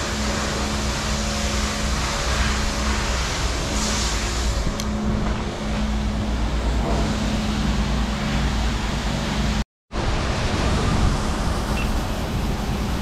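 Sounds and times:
machine humming: 0:00.0 - 0:09.6.

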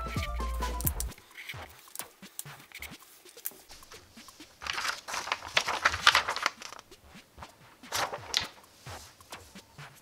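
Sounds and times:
paper rustling: 0:01.4 - 0:07.0, 0:07.8 - 0:09.6.

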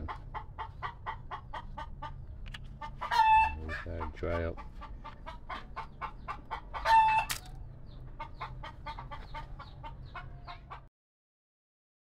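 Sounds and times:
chicken clucking: 0:00.0 - 0:10.9.

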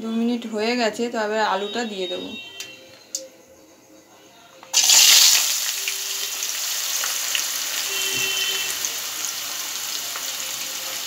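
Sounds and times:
potatoes frying in oil: 0:04.7 - 0:11.0.

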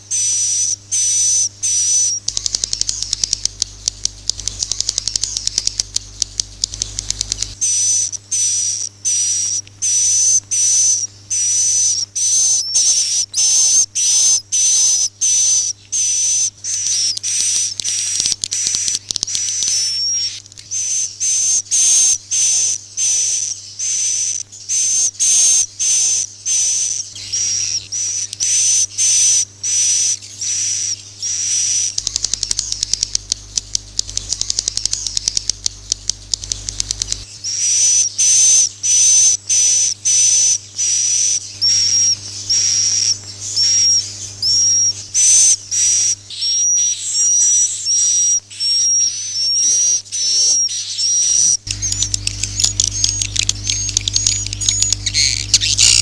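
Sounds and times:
rapid clicking twitter: 0:00.0 - 0:56.0
swiftlet chirps: 0:51.6 - 0:56.0.

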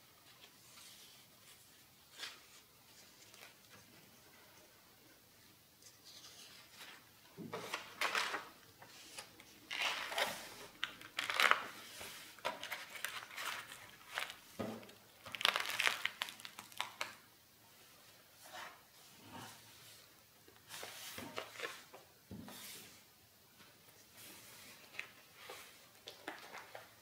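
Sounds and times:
paper pages rustling and crinkling: 0:00.2 - 0:04.2, 0:05.8 - 0:17.2, 0:20.6 - 0:22.0, 0:24.3 - 0:27.0.

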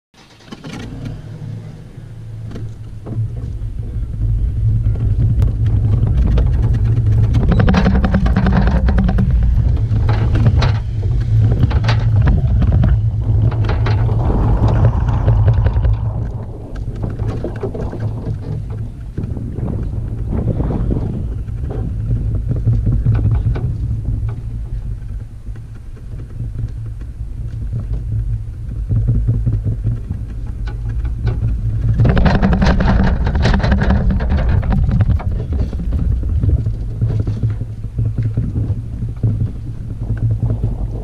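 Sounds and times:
boat and trailer rattling: 0:00.1 - 0:41.0
towed trailer rumbling: 0:00.1 - 0:41.0
air rushing past: 0:09.3 - 0:22.5.

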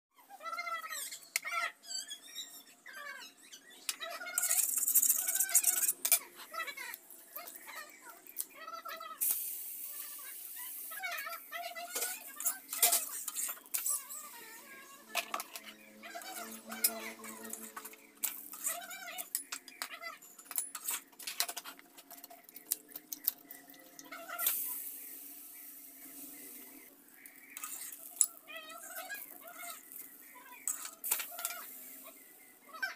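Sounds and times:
high wavering animal calls: 0:00.2 - 0:09.2, 0:23.6 - 0:25.3, 0:25.9 - 0:32.9
oil sizzling in a frying pan: 0:09.2 - 0:12.2
utensils clattering: 0:11.9 - 0:14.1, 0:15.1 - 0:23.6, 0:30.6 - 0:31.8.

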